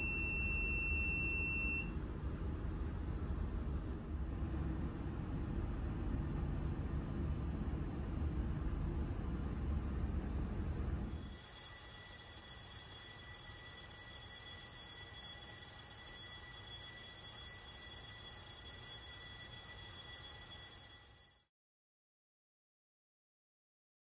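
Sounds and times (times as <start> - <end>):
fire alarm bell ringing: 0.0 - 1.9, 11.0 - 21.5.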